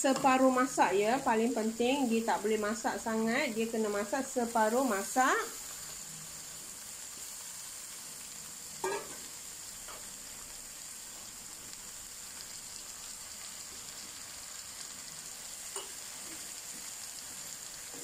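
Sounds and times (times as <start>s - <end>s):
vegetables sizzling in oil: 0.0s - 18.0s.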